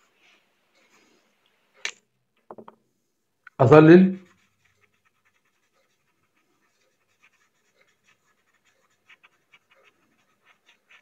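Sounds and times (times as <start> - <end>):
pencil scratching on paper: 3.7 - 11.0.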